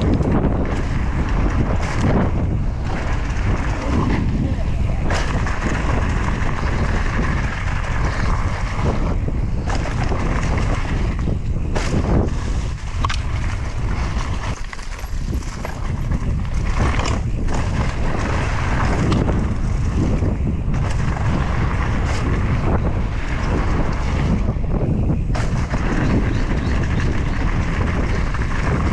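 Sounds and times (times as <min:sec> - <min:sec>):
wind rumbling on microphone: 0:00.0 - 0:28.9
bike clicks and rattles: 0:12.9 - 0:17.7.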